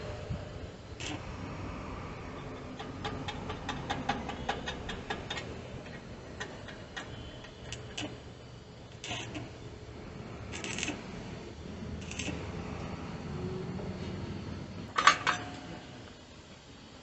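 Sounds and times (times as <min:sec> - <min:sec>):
welding electrode tapping on metal: 0:01.0 - 0:01.3, 0:02.5 - 0:08.2, 0:08.9 - 0:09.5, 0:10.5 - 0:11.0, 0:12.0 - 0:12.4.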